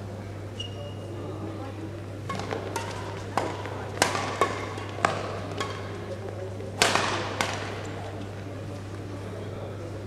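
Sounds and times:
rackets striking shuttlecock: 0:02.2 - 0:06.2, 0:06.8 - 0:08.3.

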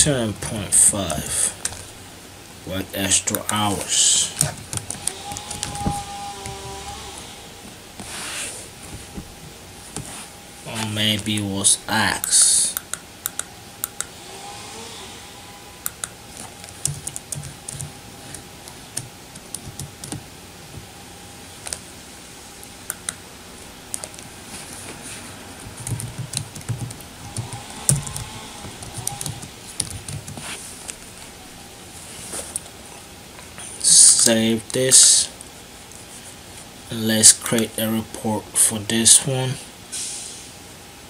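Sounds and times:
typing on computer keyboard: 0:15.9 - 0:17.9, 0:19.0 - 0:20.2, 0:25.8 - 0:28.2, 0:28.8 - 0:30.4.

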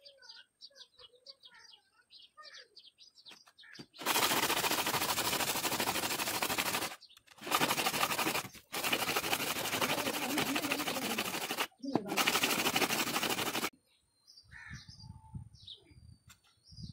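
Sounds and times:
metal rasping on sandpaper: 0:04.0 - 0:13.7.

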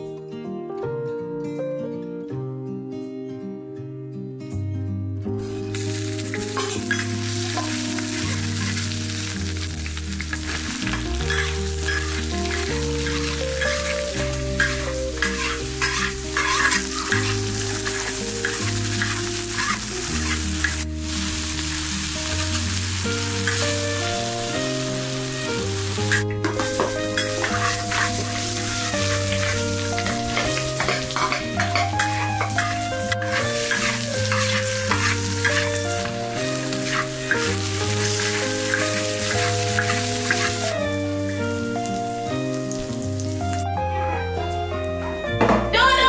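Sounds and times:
background music: 0:00.0 - 0:46.0
vegetables sizzling in a wok: 0:05.4 - 0:43.7
metal spatula scraping a pan: 0:05.7 - 0:20.8, 0:25.9 - 0:40.7.

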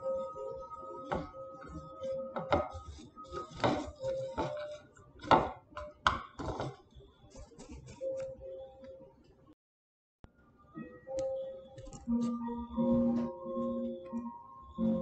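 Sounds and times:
fingers knocking and scraping bowl: 0:01.0 - 0:06.8.

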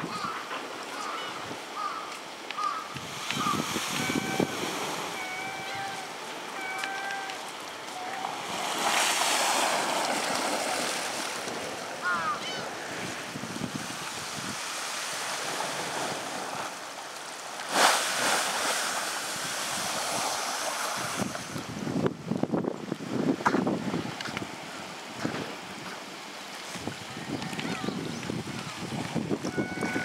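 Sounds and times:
wind on microphone: 0:02.9 - 0:07.4, 0:12.1 - 0:16.7, 0:19.1 - 0:25.9, 0:26.7 - 0:30.0.

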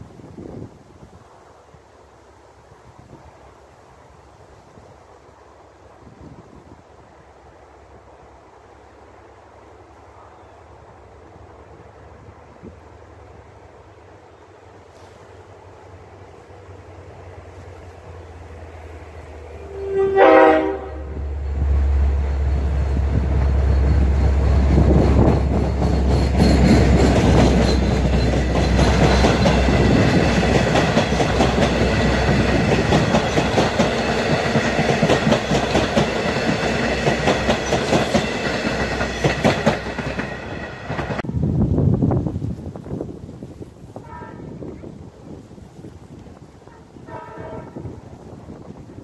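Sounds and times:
diesel locomotive drone: 0:01.9 - 0:42.5
train horn blast: 0:19.4 - 0:21.8, 0:44.0 - 0:44.8, 0:46.6 - 0:48.1
wheels clicking over rail joints: 0:22.3 - 0:41.3.

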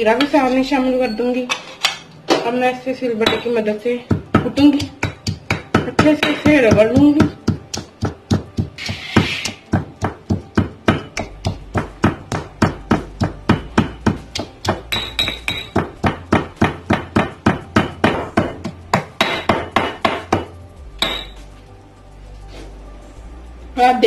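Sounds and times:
stone pestle pounding in mortar: 0:03.2 - 0:21.4.

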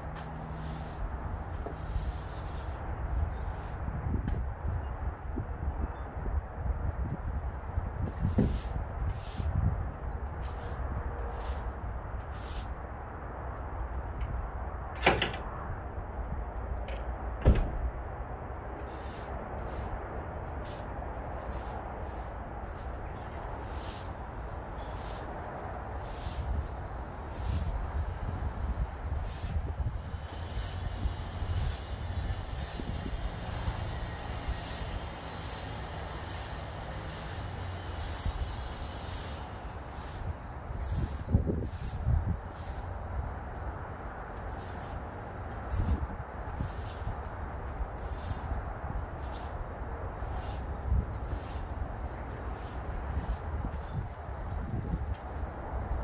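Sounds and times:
broom sweeping dry leaves: 0:00.0 - 0:04.0, 0:08.0 - 0:09.7, 0:10.3 - 0:12.8, 0:18.8 - 0:43.0, 0:44.4 - 0:54.9
steady low rumble: 0:00.0 - 0:56.0
heavy thump: 0:17.4 - 0:17.9.

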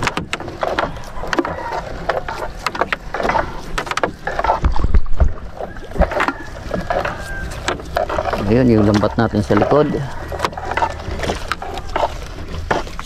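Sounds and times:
knocks against wooden hull: 0:00.0 - 0:13.0
water splashing and dripping: 0:00.0 - 0:13.0.

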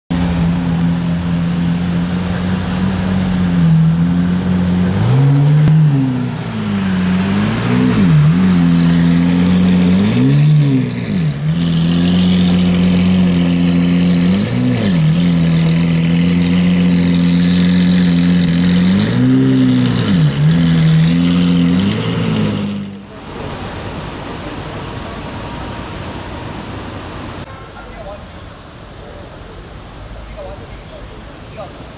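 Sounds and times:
sports car engine idling and revving: 0:00.1 - 0:27.4.

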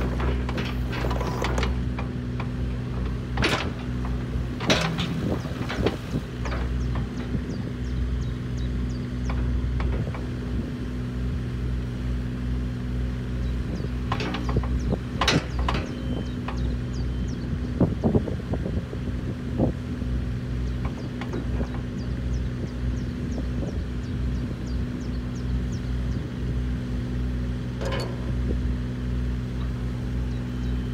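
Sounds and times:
metallic clanks and knocks: 0:00.0 - 0:07.6, 0:09.2 - 0:10.4, 0:13.8 - 0:17.0, 0:20.7 - 0:22.1, 0:27.7 - 0:28.8
diesel engine running: 0:00.0 - 0:30.9.

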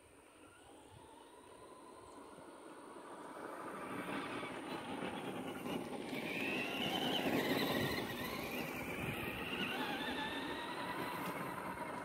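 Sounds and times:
electric motor and gears whining: 0:04.4 - 0:12.0.

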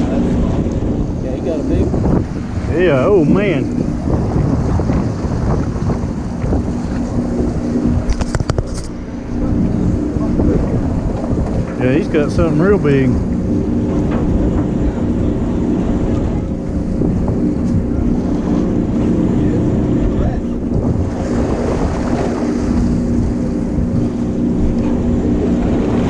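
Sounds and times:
boat engine running: 0:00.0 - 0:26.0
water washing around hull: 0:00.0 - 0:26.0
wind buffeting microphone: 0:00.0 - 0:26.0.

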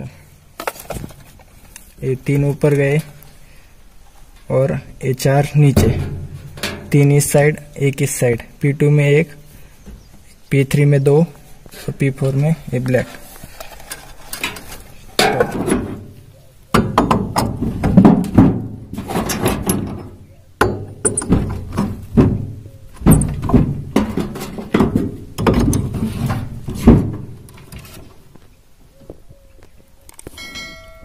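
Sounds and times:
knocks and clatter of handling: 0:00.6 - 0:02.0, 0:05.7 - 0:07.3, 0:11.6 - 0:16.1, 0:16.8 - 0:28.4
loud bumps: 0:05.6 - 0:07.4, 0:16.8 - 0:27.7.

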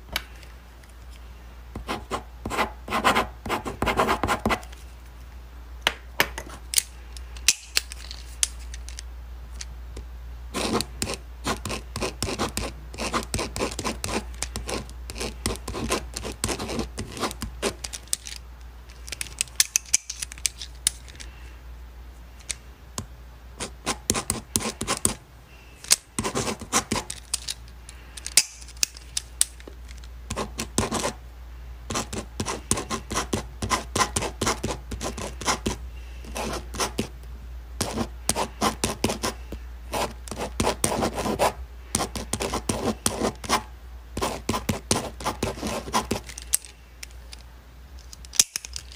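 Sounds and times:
steady low hum: 0:00.0 - 0:48.9
pen scratching on paper: 0:01.8 - 0:04.6, 0:10.5 - 0:17.8, 0:23.6 - 0:25.2, 0:26.2 - 0:27.1, 0:30.3 - 0:31.2, 0:31.9 - 0:37.1, 0:37.8 - 0:43.6, 0:44.2 - 0:46.2.

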